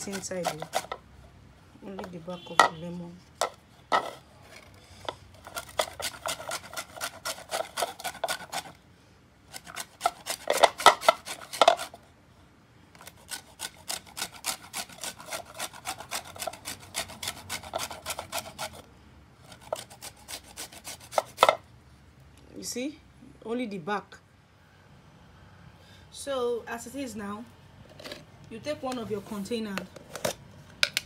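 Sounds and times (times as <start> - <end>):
lemon grated on box grater: 0.0 - 1.0, 5.4 - 8.8, 9.5 - 11.9, 13.0 - 18.8, 19.5 - 21.6.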